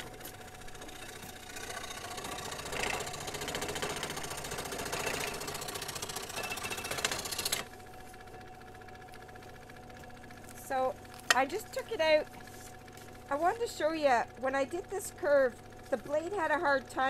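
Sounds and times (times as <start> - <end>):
scroll saw cutting wood: 0.0 - 7.7
machine hum: 0.0 - 17.0.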